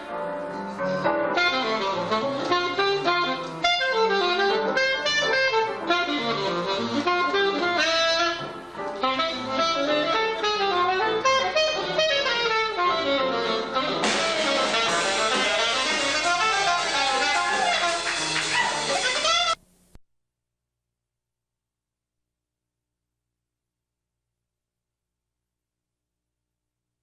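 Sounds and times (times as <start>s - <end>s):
jazz band playing: 0.0s - 19.6s
saxophone solo: 1.1s - 19.6s.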